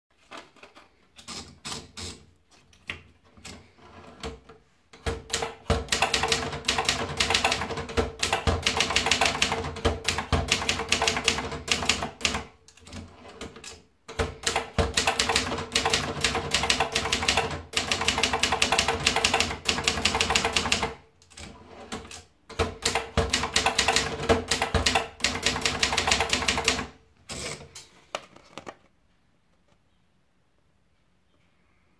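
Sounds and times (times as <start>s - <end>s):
rapid typewriter key strikes: 5.0s - 12.4s, 13.6s - 21.0s, 22.5s - 26.9s
typewriter paper feed clicks: 5.0s - 27.6s.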